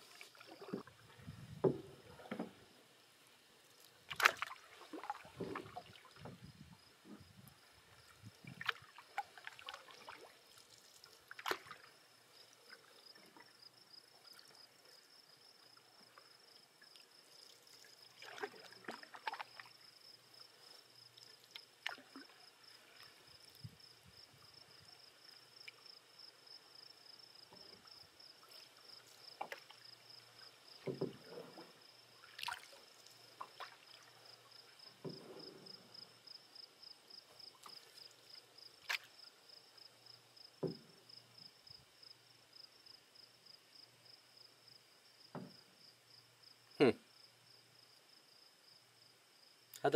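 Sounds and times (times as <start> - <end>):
paddle strokes in water: 0.0 - 2.8, 3.7 - 15.0, 16.0 - 19.9, 27.4 - 36.2, 37.3 - 39.2
paddle knocking wooden canoe: 0.5 - 2.7, 5.0 - 7.5, 30.8 - 31.7, 40.6 - 41.0, 45.3 - 45.7.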